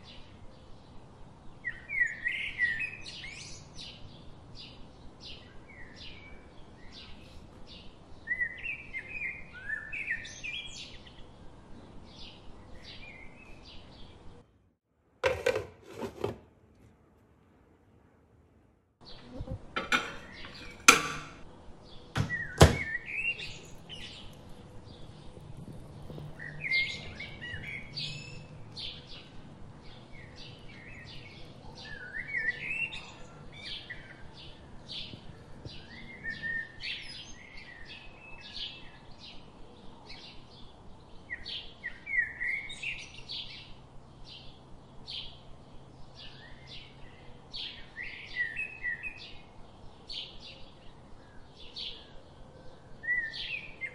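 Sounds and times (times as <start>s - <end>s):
small birds chirping: 0.0s - 14.5s, 19.0s - 53.9s.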